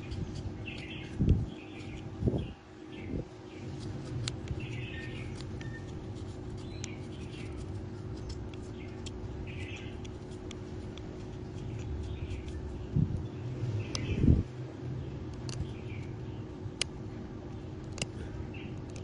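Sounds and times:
knife scraping bamboo: 0.0 - 2.1, 3.6 - 12.8
steady low hum: 0.0 - 19.0
light sharp ticks: 6.5 - 12.6, 16.8 - 17.0, 17.8 - 19.0.

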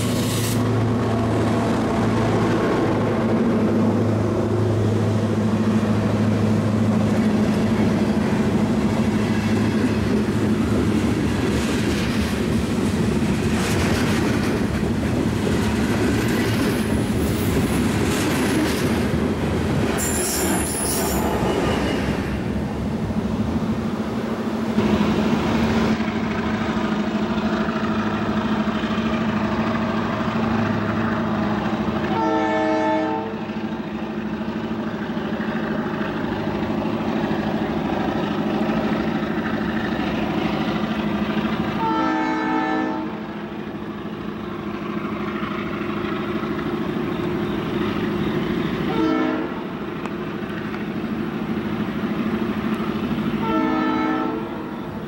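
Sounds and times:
freight train wheels clicking on rails: 0.0 - 23.7, 24.7 - 32.3, 33.2 - 42.0, 43.2 - 53.6
wheel squeal: 19.9 - 22.2
locomotive air horn blasts: 32.1 - 33.4, 41.8 - 43.3, 48.9 - 49.7, 53.4 - 54.8.

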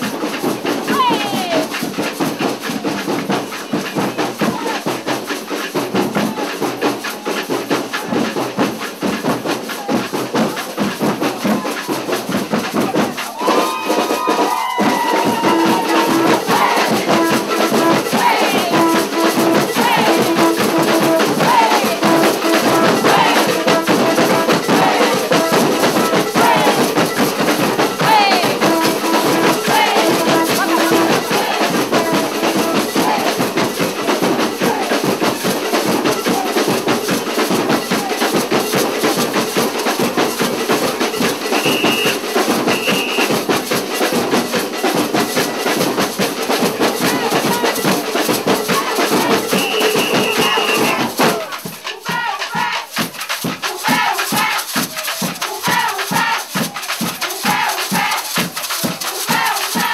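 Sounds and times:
shakers and drums rhythm: 0.0 - 59.9.

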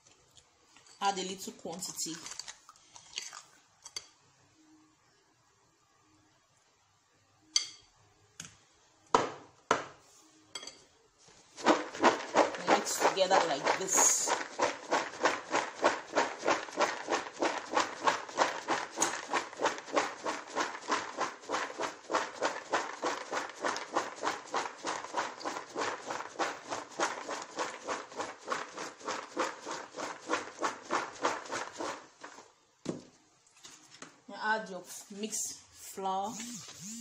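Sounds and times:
peanuts rattling in a plastic bowl: 11.6 - 32.4.

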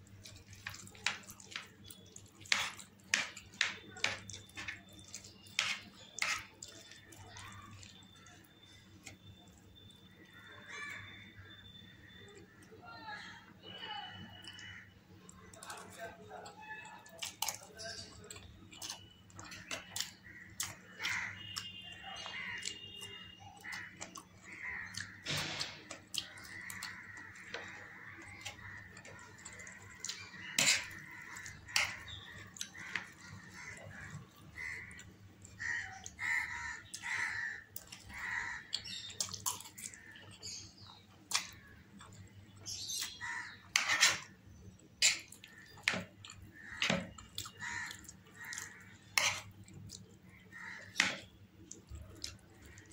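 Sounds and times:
noodles slurped and chewed: 0.0 - 9.9
metal spoon scraping ceramic plate: 43.8 - 44.3, 49.2 - 49.5.

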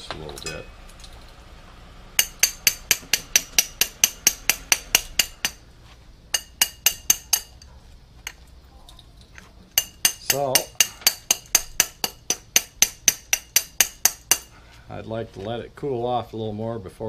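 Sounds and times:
hammer tapping metal bar: 2.2 - 5.6, 6.3 - 7.7, 9.8 - 14.5.

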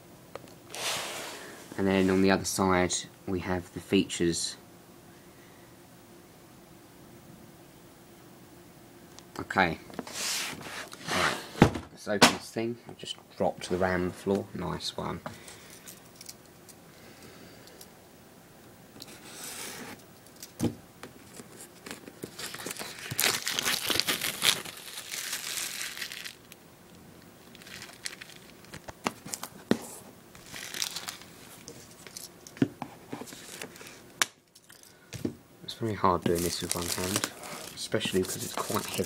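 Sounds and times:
cardboard packaging crinkling and tearing: 21.2 - 26.6, 27.4 - 32.3, 33.2 - 34.1, 36.2 - 39.0.

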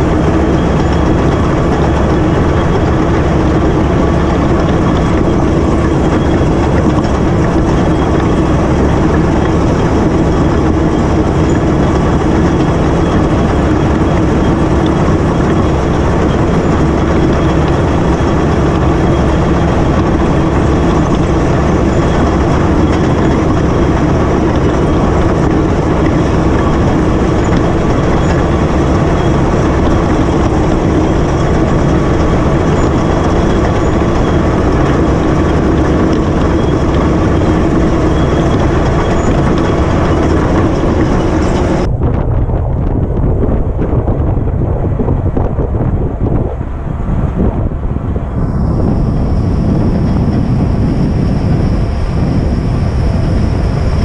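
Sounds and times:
steel tracks rattling: 0.0 - 41.9
bulldozer diesel engine under load: 0.0 - 54.0.

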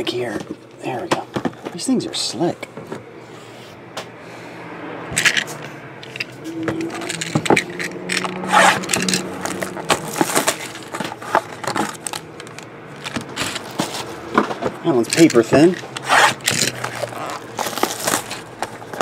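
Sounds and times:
plastic wrap crackling: 8.2 - 14.1, 15.1 - 19.0
cardboard boxes scraping and tapping: 8.6 - 12.2.

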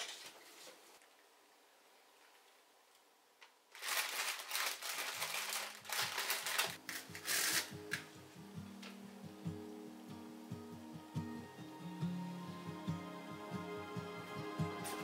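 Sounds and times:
plastic packaging crinkling: 3.7 - 8.0
soft background music: 6.2 - 15.0.

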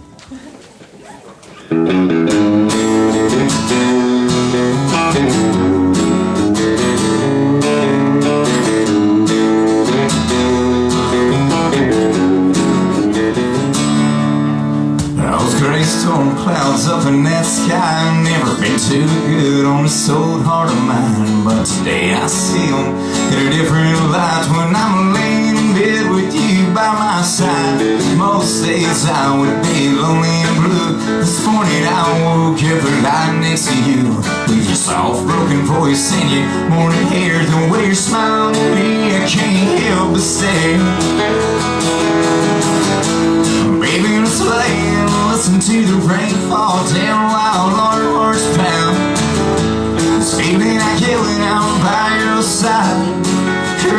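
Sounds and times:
acoustic guitar strumming: 1.5 - 53.9
man singing: 15.0 - 41.8, 43.3 - 53.9.

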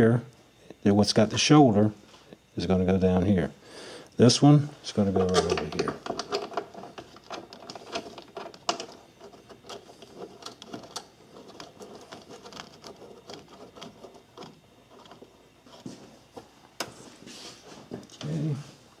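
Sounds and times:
plastic clicks and rattles: 5.2 - 15.2.

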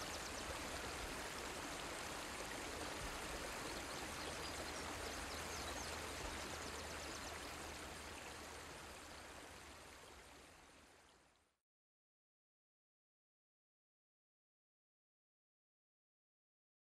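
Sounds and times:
rushing water: 0.0 - 11.3.

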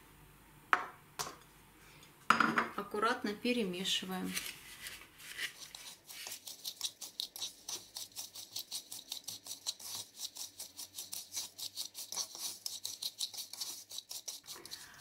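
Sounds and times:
fork mashing butter into sugar: 4.4 - 15.0.

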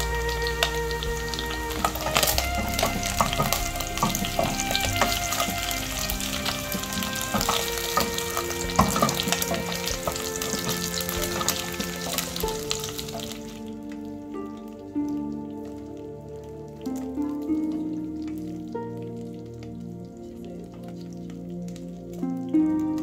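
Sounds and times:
wooden spatula stirring: 0.0 - 13.7
meat sizzling in hot oil: 0.0 - 14.1
oil spattering crackles: 0.0 - 14.3.

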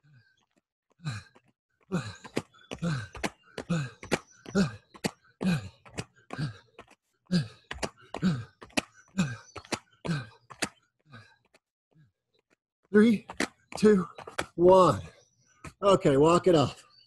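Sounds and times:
man grunting and breathing hard: 1.0 - 10.4.

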